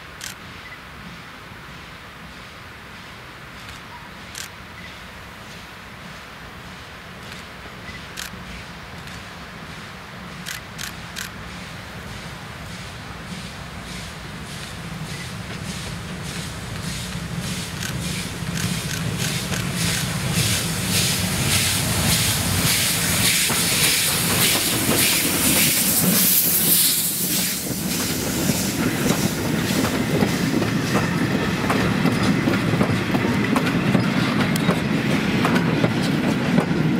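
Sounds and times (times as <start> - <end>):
loud steam hiss: 0.2 - 36.9
steam locomotive exhaust beats: 4.1 - 36.9
wheels clacking over rail joints: 14.6 - 26.3, 27.8 - 36.9.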